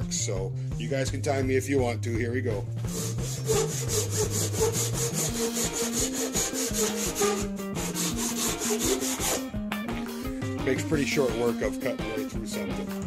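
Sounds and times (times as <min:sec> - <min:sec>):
hand saw rasping through wood: 0:02.9 - 0:09.5.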